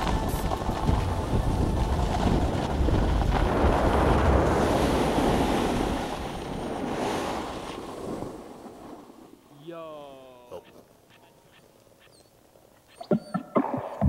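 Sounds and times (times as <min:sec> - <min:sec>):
wind rumbling on microphone: 0:00.0 - 0:09.3
snowboard sliding on snow: 0:00.0 - 0:10.2.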